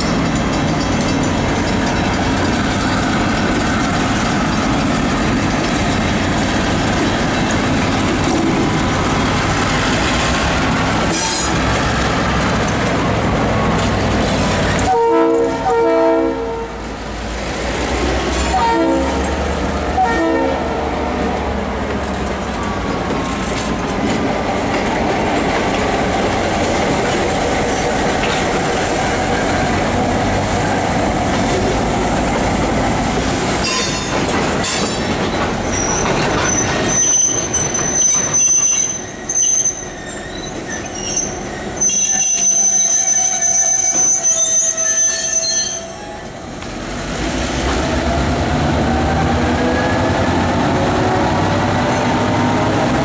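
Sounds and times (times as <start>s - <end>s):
train wheel noise: 0.0s - 53.0s
diesel locomotive horn: 14.8s - 16.8s, 18.4s - 20.9s
wheels squealing: 34.8s - 46.3s.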